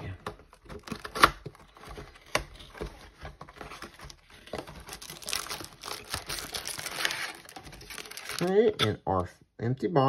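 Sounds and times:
cardboard flaps tapping and scraping: 0.3 - 8.1
packs rustling: 0.8 - 8.7.

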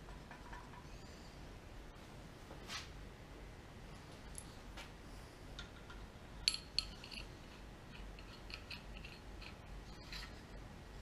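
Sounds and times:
metal-on-metal clinks: 6.4 - 10.4.

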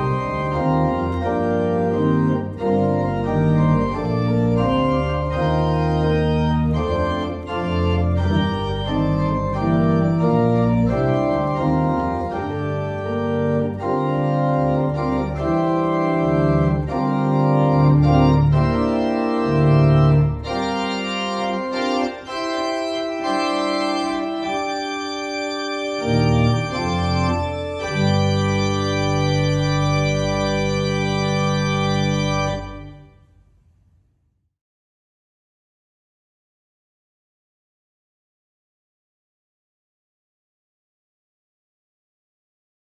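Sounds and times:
organ playing sustained chords: 0.0 - 33.3.

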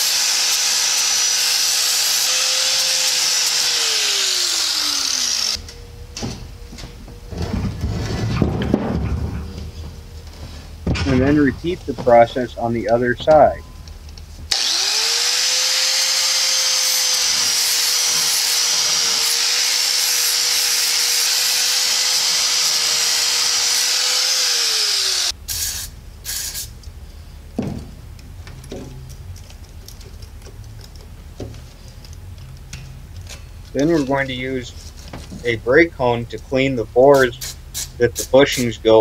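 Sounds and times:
angle grinder grinding steel: 0.0 - 5.8, 14.5 - 26.8, 32.5 - 35.0
tool knocks and clatters: 6.2 - 9.8, 27.6 - 31.7.

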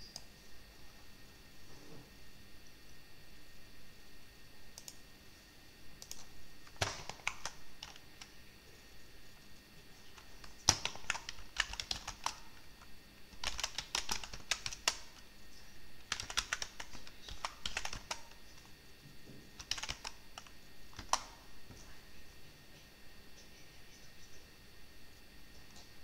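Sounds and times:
keyboard typing clicks: 4.8 - 5.0, 6.0 - 8.3, 10.2 - 12.6, 13.3 - 15.2, 16.0 - 18.4, 19.6 - 21.3.

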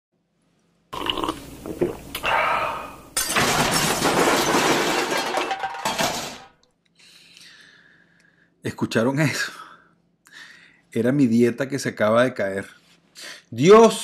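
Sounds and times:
glass clinks and knocks: 3.2 - 6.5
glass crashing and shattering: 3.2 - 6.6.

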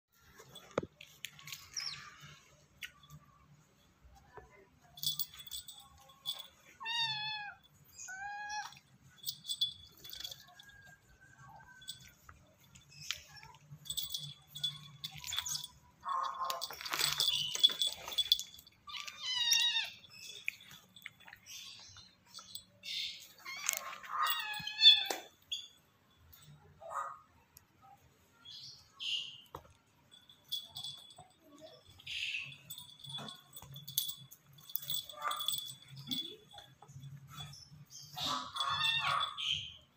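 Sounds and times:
scratching and clicking scuffle: 11.5 - 19.7.

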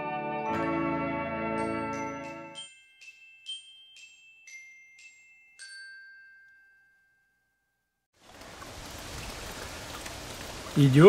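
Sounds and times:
glockenspiel jingle notes: 0.0 - 8.0
quiet rain hiss: 8.2 - 11.0.

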